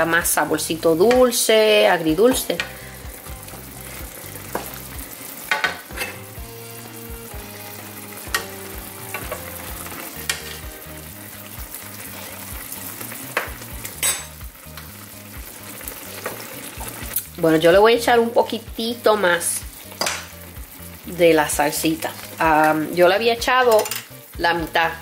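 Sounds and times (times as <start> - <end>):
chicken sizzling in a skillet: 0.0 - 25.0
spoon clicking against pan: 8.3 - 9.4, 10.2 - 10.6.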